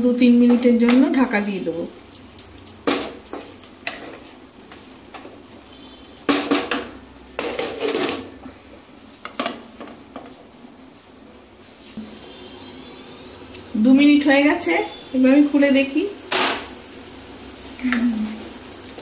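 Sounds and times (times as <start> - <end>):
wooden spatula scraping a pan: 3.0 - 5.4.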